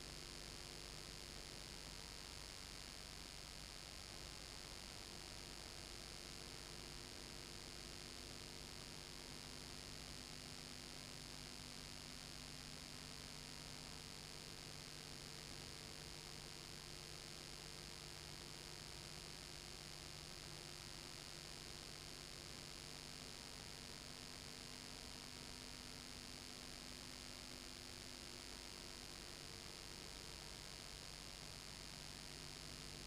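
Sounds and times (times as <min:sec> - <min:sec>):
faint electrical hum: 0:00.0 - 0:33.0.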